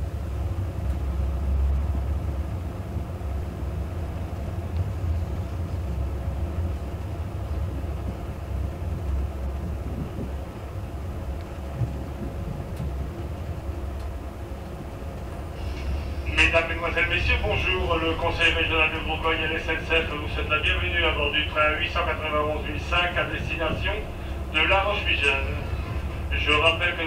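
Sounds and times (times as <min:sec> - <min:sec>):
faint steady hum: 0:00.0 - 0:27.0
train low rumble: 0:00.0 - 0:27.0
light ticks: 0:04.7 - 0:04.9, 0:11.4 - 0:12.0, 0:12.7 - 0:15.3.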